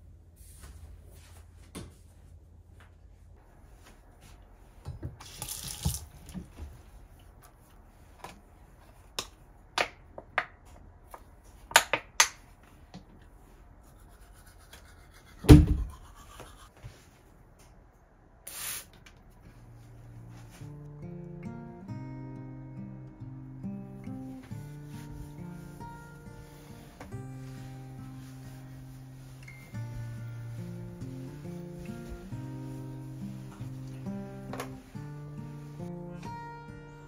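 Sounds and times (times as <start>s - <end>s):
water rushing from tap: 5.2s - 6.3s
spray bottle spritz: 18.5s - 19.0s.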